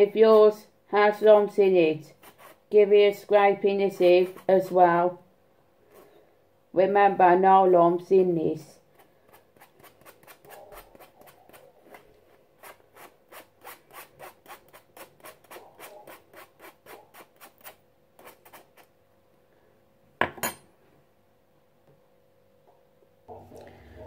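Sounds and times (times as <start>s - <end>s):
sugar scraped through mesh sieve: 12.6s - 18.9s.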